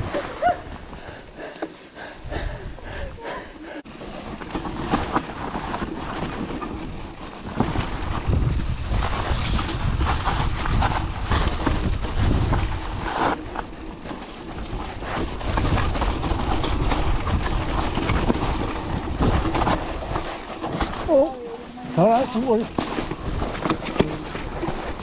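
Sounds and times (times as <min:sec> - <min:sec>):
bike knocking and rattling: 0:03.8 - 0:25.0
bike tyres rolling on gravel: 0:03.9 - 0:25.0
wind rumbling on microphone: 0:04.3 - 0:21.2.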